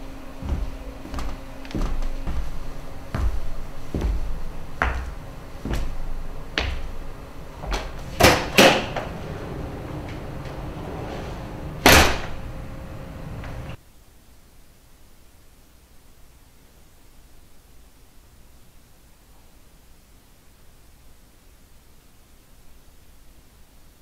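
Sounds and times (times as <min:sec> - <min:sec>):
footsteps on hard stage floor: 0:00.0 - 0:13.8
faint steady hum: 0:00.0 - 0:24.0
loud bangs: 0:06.0 - 0:13.8.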